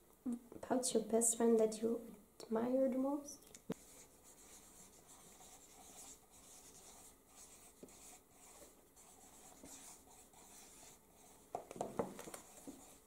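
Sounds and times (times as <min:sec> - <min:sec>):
pen scratching on paper: 0:03.8 - 0:11.6, 0:12.2 - 0:13.0.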